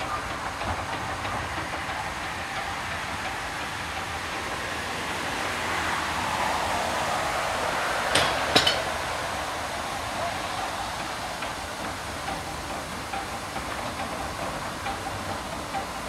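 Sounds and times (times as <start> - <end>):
steam locomotive hissing: 0.0 - 16.0
sharp metallic clanks: 8.1 - 9.0.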